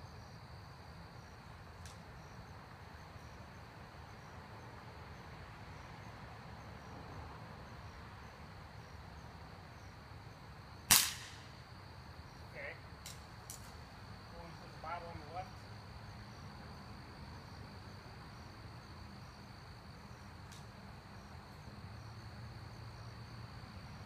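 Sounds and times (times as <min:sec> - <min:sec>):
crickets chirring: 0:00.0 - 0:24.0
air rifle shot crack: 0:10.9 - 0:11.6.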